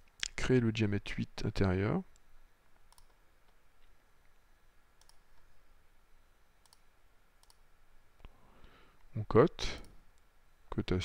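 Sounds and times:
computer mouse clicks: 2.9s - 3.2s, 5.0s - 5.2s, 6.6s - 7.6s.

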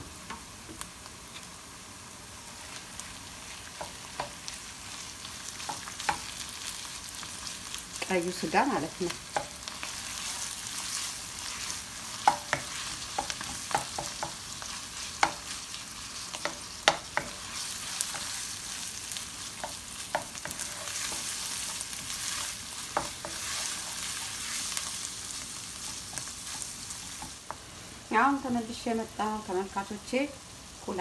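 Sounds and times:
meat sizzling in a pan: 0.0s - 31.0s.

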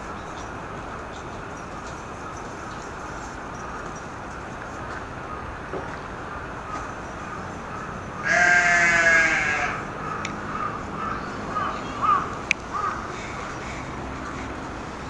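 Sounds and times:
long wavering bleat: 8.2s - 9.9s.

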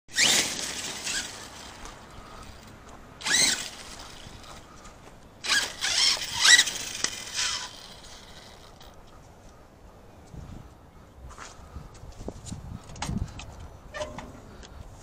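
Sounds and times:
electric motor whining: 0.1s - 2.6s, 3.2s - 4.6s, 5.4s - 8.9s.

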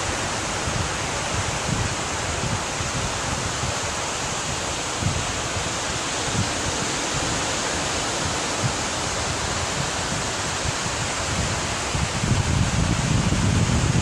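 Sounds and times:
surf washing onto beach: 0.0s - 14.0s
wind rumble on microphone: 0.0s - 14.0s.

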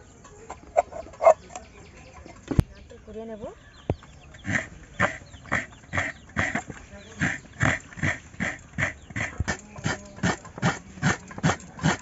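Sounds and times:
coconut scraping on grater: 4.5s - 12.0s.

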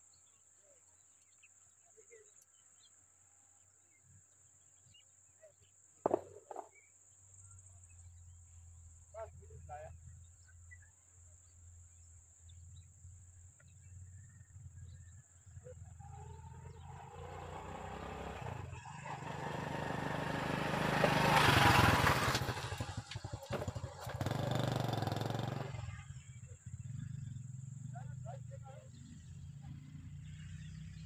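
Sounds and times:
vehicle engine passing by: 15.4s - 31.0s.

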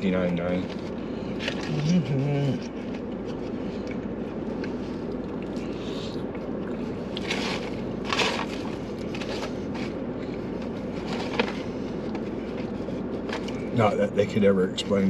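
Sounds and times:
low car cabin hum: 0.0s - 15.0s
paper bags rustling: 7.2s - 13.8s.

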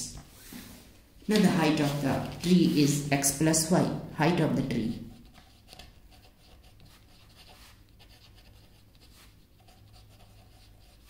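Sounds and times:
pen scratching on paper: 1.3s - 11.0s.

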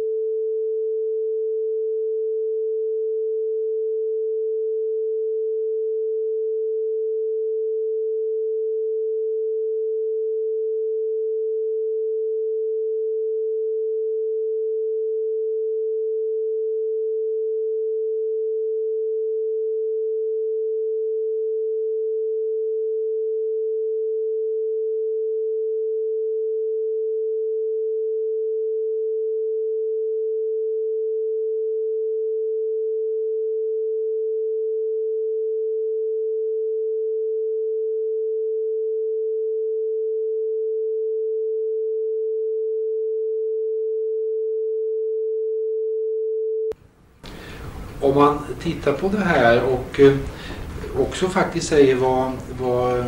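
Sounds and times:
steady pure tone: 44.4s - 53.0s.

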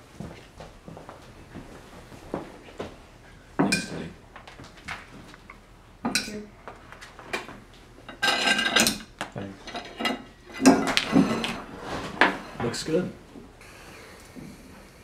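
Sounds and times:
cutlery clinking on plates: 3.6s - 4.0s, 6.1s - 6.4s, 8.1s - 11.6s.

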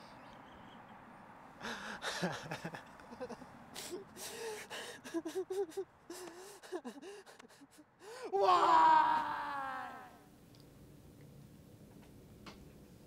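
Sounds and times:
man crying: 1.7s - 10.2s.

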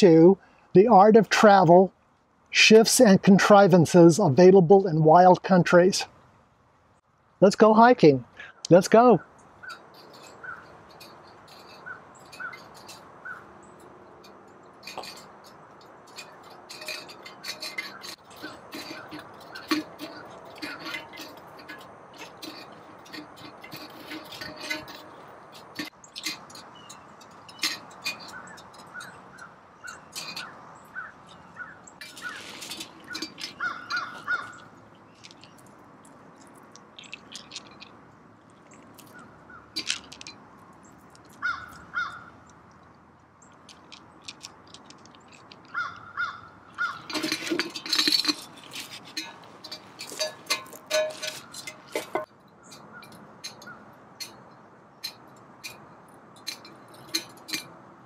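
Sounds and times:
bird calling: 8.4s - 13.9s, 25.8s - 35.7s, 41.2s - 42.5s, 45.6s - 47.3s
footsteps on gravel: 31.3s - 40.4s, 43.5s - 52.3s
pebbles clicking together: 32.0s - 41.9s, 42.5s - 46.1s.

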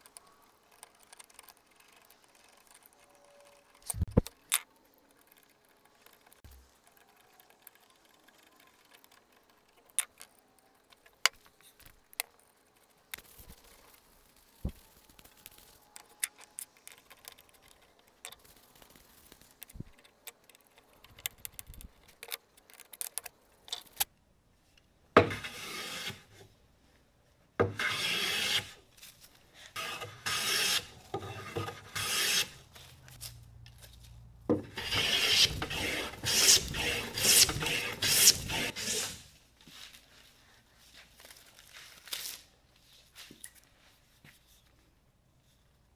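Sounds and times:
hand plane shaving wood: 25.2s - 26.3s, 27.7s - 28.8s, 29.8s - 32.6s, 34.7s - 39.3s.

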